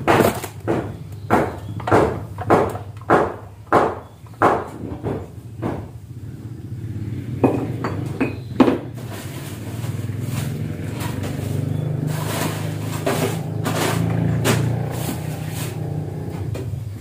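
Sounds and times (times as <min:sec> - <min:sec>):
metal wok and utensils clinking: 0:09.0 - 0:15.8.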